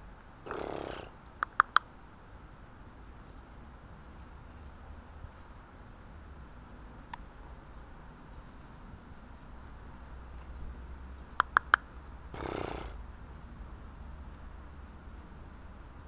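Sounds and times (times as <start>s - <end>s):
pony snorting: 0.4s - 1.2s, 12.3s - 13.0s
sharp clicks: 0.5s - 1.9s, 11.3s - 13.0s.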